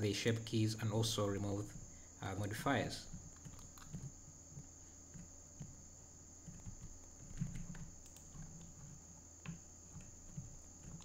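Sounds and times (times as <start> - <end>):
high-pitched electrical whine: 0.0 - 11.0
keyboard and mouse clicks: 3.2 - 5.8, 6.4 - 11.0.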